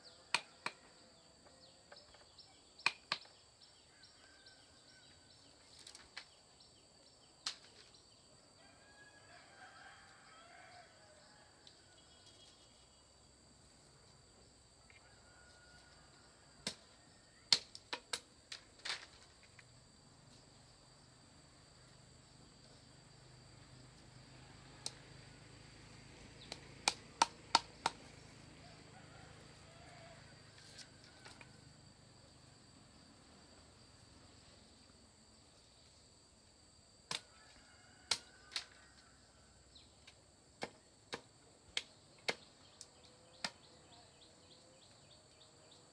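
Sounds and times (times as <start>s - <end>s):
hollow knocks on bamboo poles: 1.9s - 3.4s, 26.4s - 28.0s, 40.0s - 42.5s.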